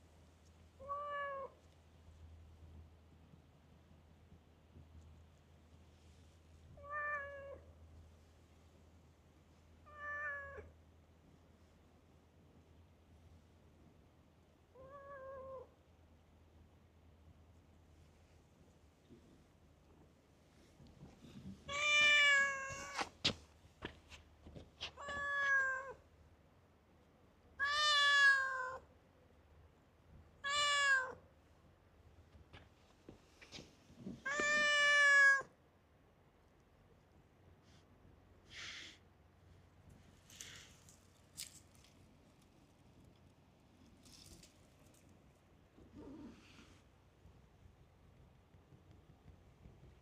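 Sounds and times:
cat meowing: 0:00.8 - 0:01.6, 0:06.8 - 0:07.6, 0:09.8 - 0:10.7, 0:14.8 - 0:15.7, 0:21.7 - 0:23.1, 0:24.8 - 0:26.0, 0:27.6 - 0:28.9, 0:30.4 - 0:31.2, 0:34.2 - 0:35.5.

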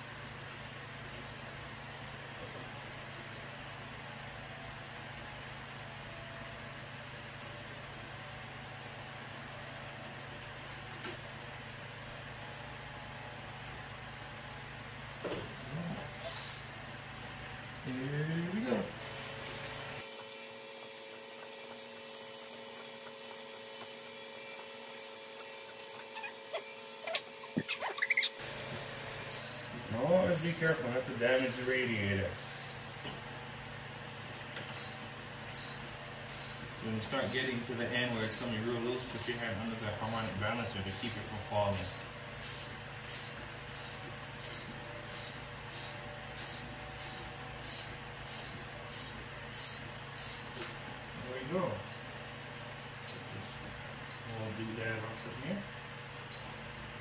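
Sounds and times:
ratchet pawl clicks: 0:31.4 - 0:31.8, 0:34.7 - 0:36.6, 0:38.2 - 0:40.3, 0:41.8 - 0:50.7.

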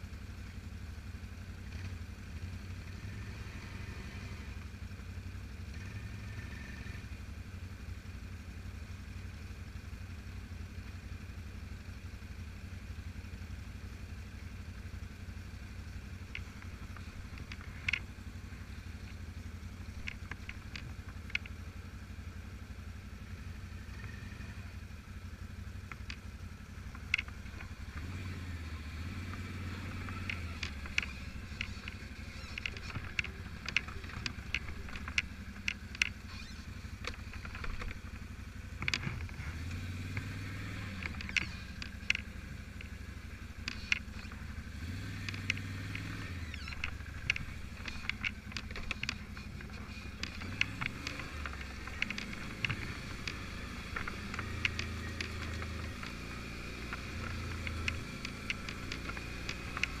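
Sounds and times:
quad bike engine: 0:00.0 - 1:00.0
sharp clicks and knocks: 0:15.9 - 0:21.7, 0:25.7 - 0:28.1, 0:29.2 - 1:00.0.

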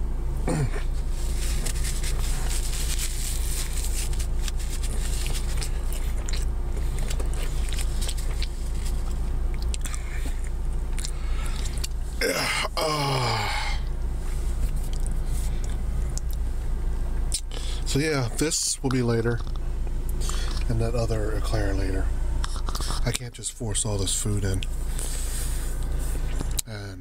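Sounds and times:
steady low hum: 0:00.0 - 0:27.0
chewing soft pastry: 0:01.3 - 0:12.0, 0:22.4 - 0:23.2
short falling vocal sound: 0:12.2 - 0:13.8.

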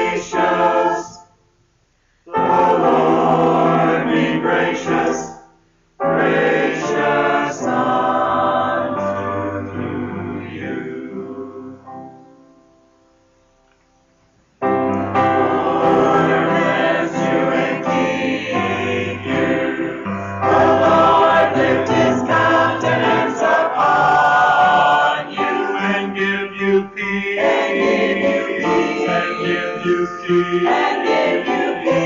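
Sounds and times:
choir singing a hymn: 0:00.0 - 0:01.3, 0:02.3 - 0:12.3, 0:14.8 - 0:32.0.

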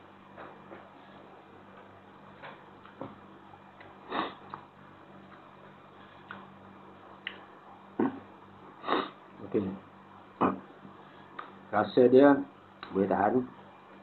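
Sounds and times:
low steady hum: 0:00.0 - 0:14.0
person sniffing: 0:04.1 - 0:04.4, 0:08.8 - 0:09.2.

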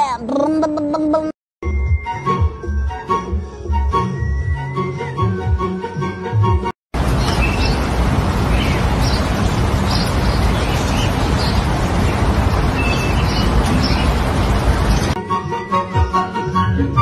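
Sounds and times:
loud steady rushing noise: 0:07.0 - 0:15.2.

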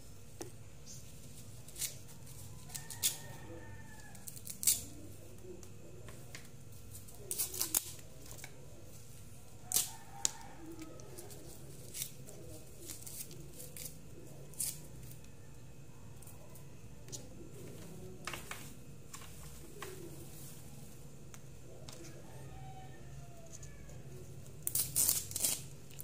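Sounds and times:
leaves snapping and rustling: 0:04.2 - 0:04.9, 0:07.0 - 0:08.6, 0:24.6 - 0:26.0.

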